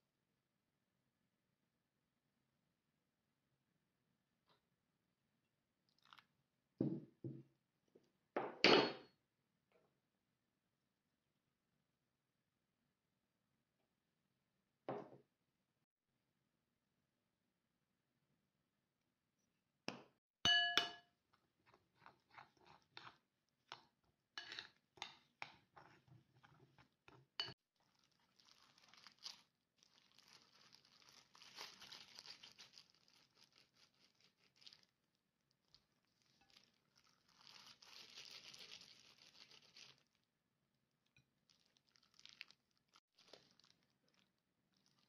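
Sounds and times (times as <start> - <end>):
spoon clinking on ceramic bowl: 20.5 - 21.1
plastic gloves crinkling: 27.7 - 40.4, 41.3 - 45.0.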